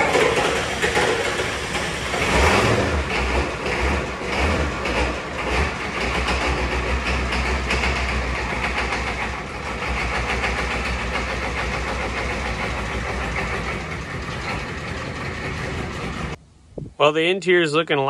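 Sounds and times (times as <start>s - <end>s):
diesel truck engine idling: 0.0s - 16.4s.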